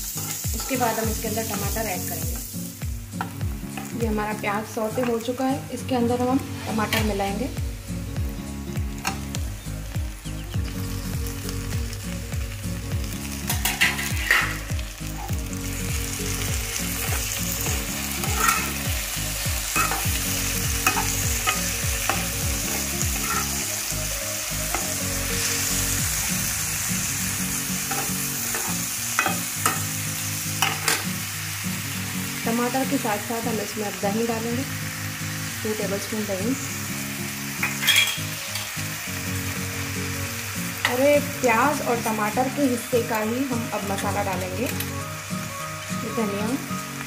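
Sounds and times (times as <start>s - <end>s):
vegetables sizzling in hot oil: 0.0s - 47.0s
spatula scraping pan: 13.5s - 14.6s, 17.0s - 18.9s, 20.8s - 23.7s.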